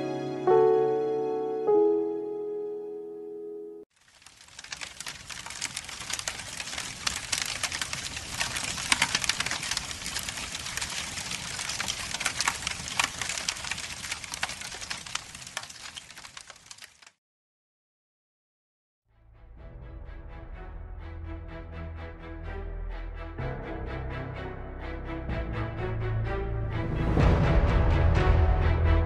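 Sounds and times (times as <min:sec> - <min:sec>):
piano music: 0:00.0 - 0:03.9
fire crackling with pops: 0:04.0 - 0:17.2.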